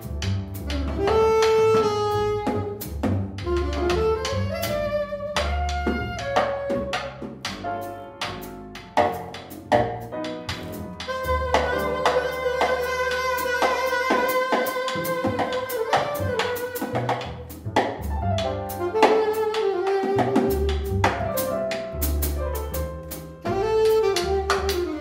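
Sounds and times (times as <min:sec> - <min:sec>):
double bass: 0:00.0 - 0:25.0
piano: 0:00.0 - 0:25.0
alto saxophone long notes: 0:00.7 - 0:07.0, 0:11.1 - 0:17.3, 0:18.7 - 0:21.1, 0:23.4 - 0:25.0
drum kit hits: 0:05.4 - 0:19.5.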